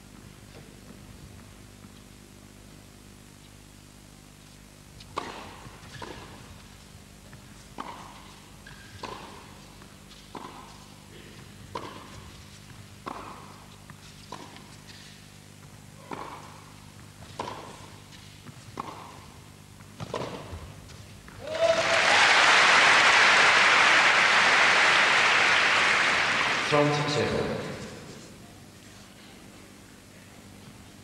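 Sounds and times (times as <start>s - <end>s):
steady low hum: 0.0s - 21.9s, 22.5s - 31.0s
tennis ball struck by racquets: 5.1s - 6.4s, 7.8s - 9.5s, 11.7s - 12.1s, 13.0s - 13.5s, 16.0s - 16.6s, 17.4s - 17.8s, 18.7s - 19.2s, 20.0s - 20.6s.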